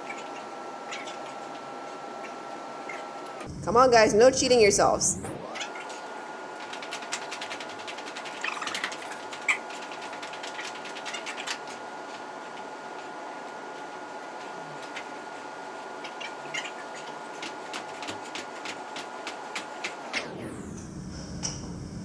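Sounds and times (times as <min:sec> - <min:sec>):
steady hum with high tone: 0:00.0 - 0:22.0.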